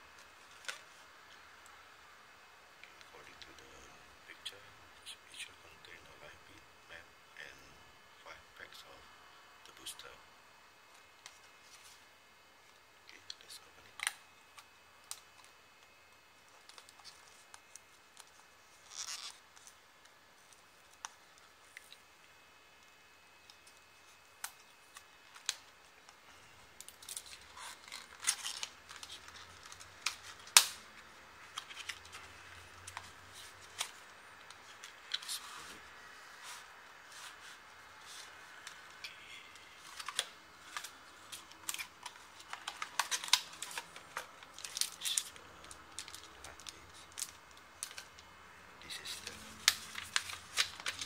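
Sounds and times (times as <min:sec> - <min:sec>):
cardboard and packaging rustling: 0:31.4 - 0:48.2, 0:48.9 - 0:51.0.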